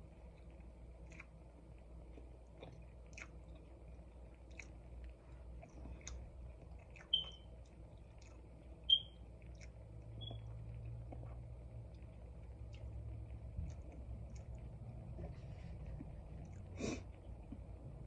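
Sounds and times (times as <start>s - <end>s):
person chewing: 0.3s - 8.6s, 9.4s - 17.7s.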